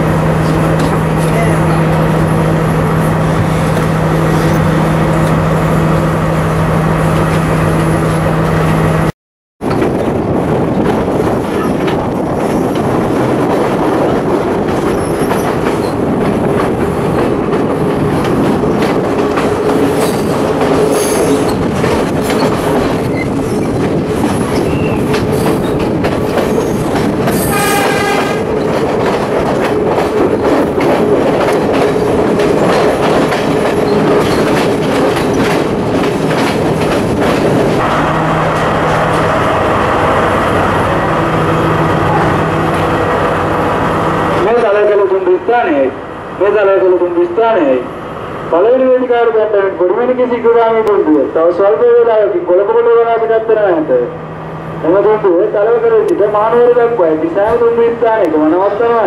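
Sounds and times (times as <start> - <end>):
train rumble: 0.0 - 59.0
wheels clicking over rail joints: 9.6 - 37.8.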